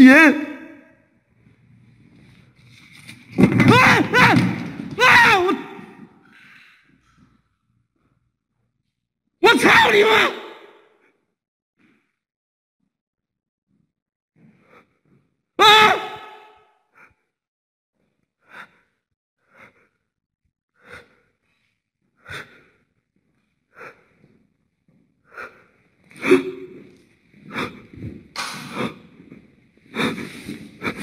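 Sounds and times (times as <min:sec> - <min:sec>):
objects knocking and rattling: 0:02.6 - 0:05.5.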